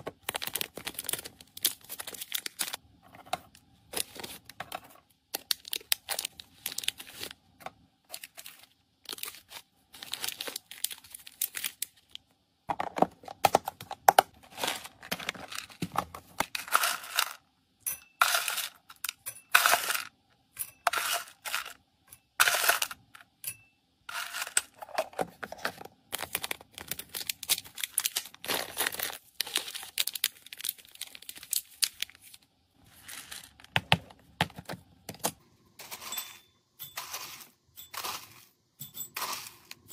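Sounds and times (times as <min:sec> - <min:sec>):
plastic packets crinkling: 0:00.0 - 0:02.8, 0:05.3 - 0:07.4, 0:08.1 - 0:12.3, 0:24.1 - 0:36.1
dry kibble rattling into glass bowl: 0:35.8 - 0:39.9.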